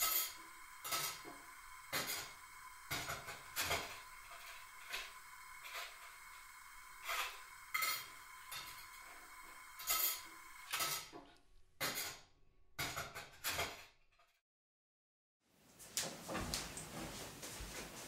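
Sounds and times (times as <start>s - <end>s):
faint steady hum: 0.0s - 11.7s.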